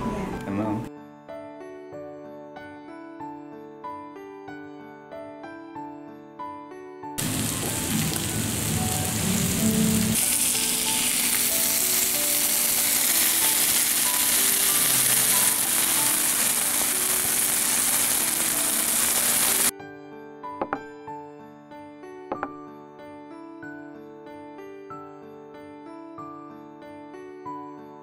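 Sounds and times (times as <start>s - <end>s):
soft background music: 0.0s - 28.0s
meat sizzling on hot plate: 7.2s - 19.7s.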